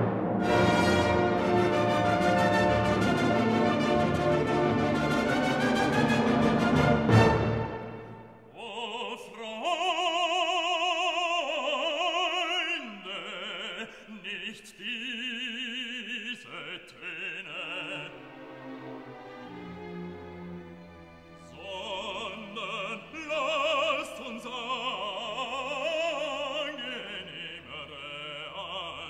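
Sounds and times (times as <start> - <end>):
orchestral hit: 0.0 - 8.2
orchestra playing: 0.0 - 8.4, 18.0 - 23.0
operatic voice singing: 8.5 - 18.5, 21.4 - 29.0.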